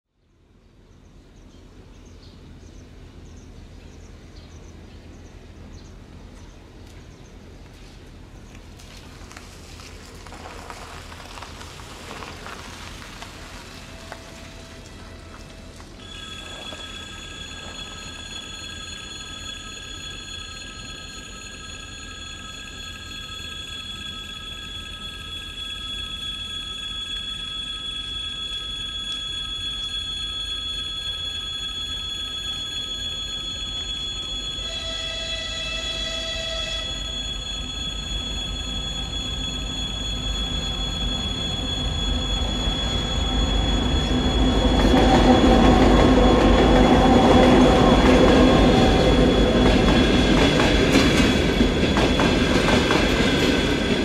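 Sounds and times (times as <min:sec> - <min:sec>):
tyres on wet road: 0:08.6 - 0:16.9
level crossing warning bell: 0:08.8 - 0:54.0.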